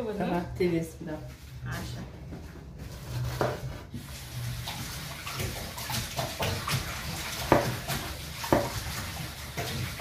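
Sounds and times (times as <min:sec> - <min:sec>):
water sloshing in metal pot: 0:02.8 - 0:10.0.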